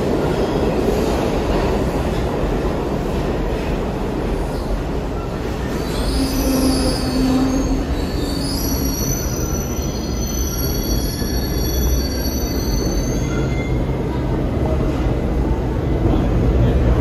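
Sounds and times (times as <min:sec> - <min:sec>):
train rumble: 0:00.0 - 0:17.0
train wheels squealing on rails: 0:04.4 - 0:14.2.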